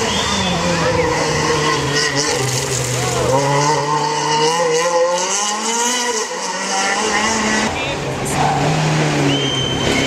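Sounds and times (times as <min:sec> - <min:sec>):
rally car engine running hard: 0:00.0 - 0:10.0.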